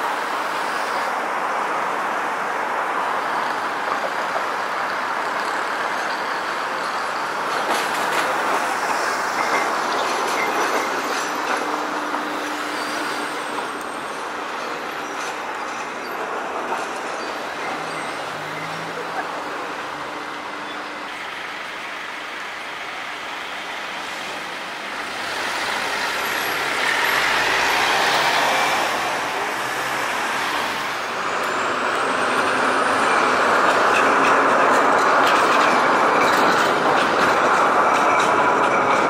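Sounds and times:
street traffic: 0.0 - 39.0
tram running on rails: 0.0 - 39.0
tram wheels clattering: 3.4 - 39.0
truck passing close: 23.9 - 38.9.

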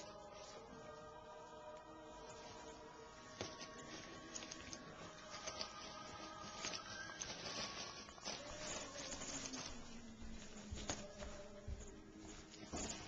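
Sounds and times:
kittens scrabbling on fabric: 3.3 - 13.0.

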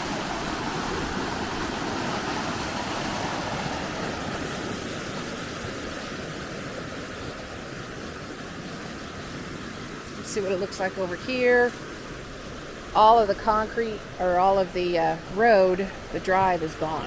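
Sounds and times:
floodwater rushing over concrete: 0.0 - 17.0.

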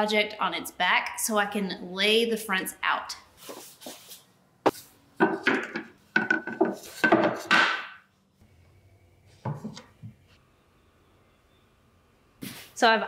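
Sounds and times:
wooden boards clattering: 5.2 - 8.0.

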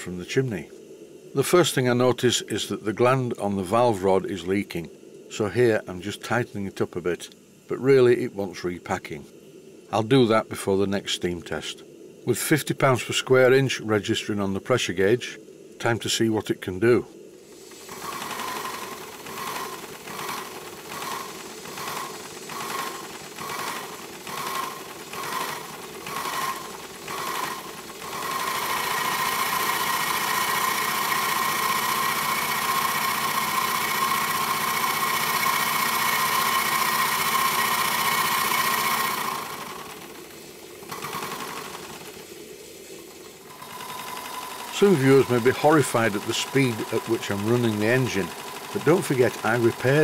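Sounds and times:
model steam engine running: 17.6 - 50.0.

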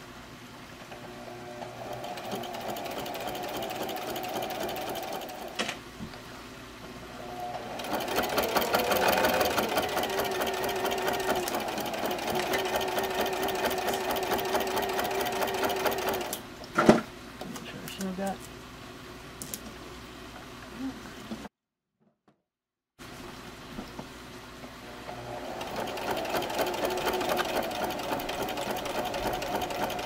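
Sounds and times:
electric sewing machine stitching: 0.9 - 5.6, 7.2 - 16.4, 24.9 - 30.0.

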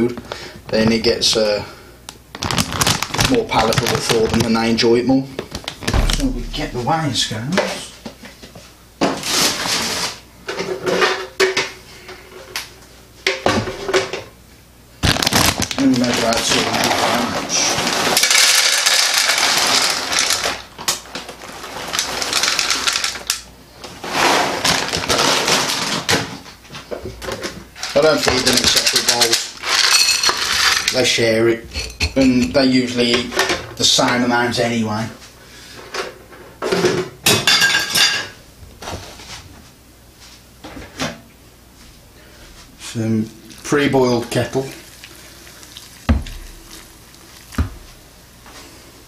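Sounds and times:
kibble pouring into plastic pan: 15.3 - 20.6, 21.4 - 23.2.

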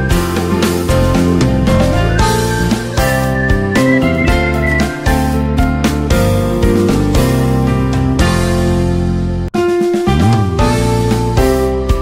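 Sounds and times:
instrumental guitar music with beat: 1.2 - 5.6.

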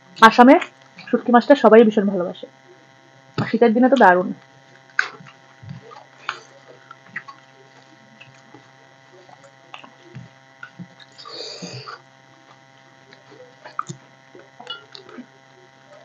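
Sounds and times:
steady electrical hum: 0.0 - 16.0
chewing and mouth clicks: 4.9 - 11.3, 11.9 - 15.3.

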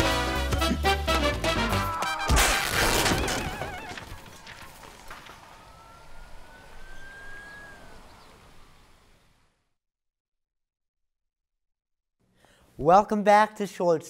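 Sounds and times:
music: 0.0 - 2.4
warbling police siren: 1.6 - 8.6
faint siren wail: 1.6 - 9.2
loud crash: 1.7 - 5.8.

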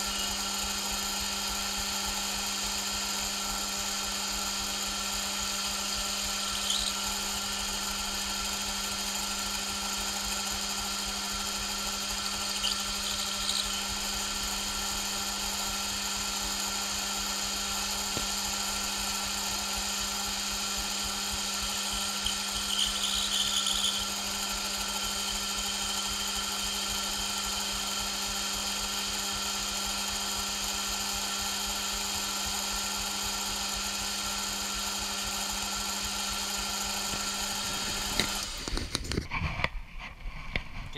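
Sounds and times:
metal lathe humming: 0.0 - 39.2
high-pitched cutting bursts: 5.3 - 18.1, 18.8 - 27.4.

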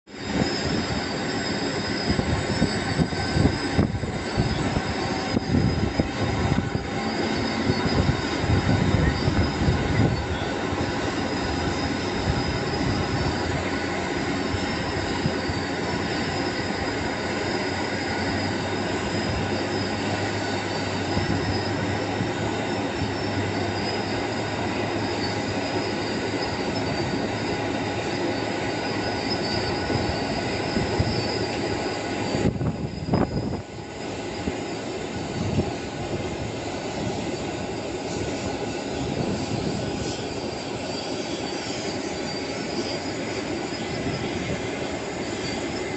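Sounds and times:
jet engines whining: 0.1 - 45.9
low gusty rumble: 2.1 - 17.0, 32.2 - 40.6.

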